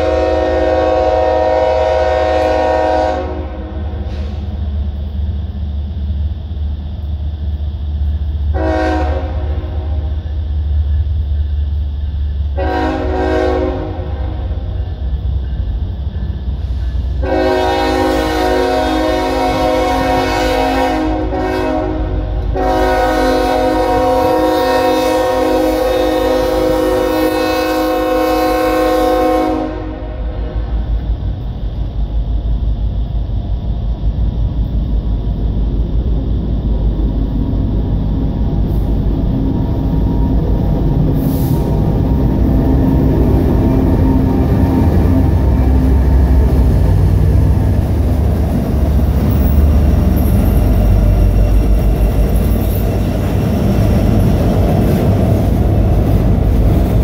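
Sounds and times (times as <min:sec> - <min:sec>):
locomotive air horn chord: 0:00.0 - 0:04.4, 0:08.5 - 0:10.0, 0:12.6 - 0:14.7, 0:17.1 - 0:30.6
locomotive engine rumble: 0:00.0 - 0:57.0
train cars running on rails: 0:00.0 - 0:57.0.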